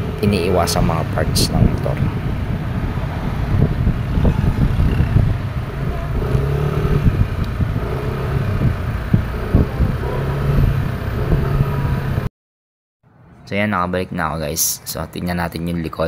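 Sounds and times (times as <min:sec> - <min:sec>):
scooter engine humming: 0:00.0 - 0:12.3
wind rumble on microphone: 0:00.0 - 0:12.3.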